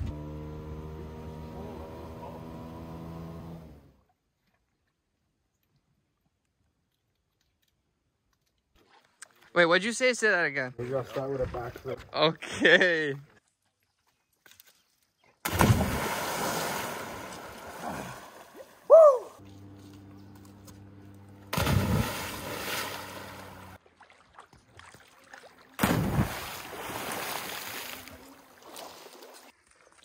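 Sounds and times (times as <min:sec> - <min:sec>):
person splashing into water: 0:15.4 - 0:18.9, 0:21.5 - 0:30.0
short high cry: 0:18.9 - 0:19.4.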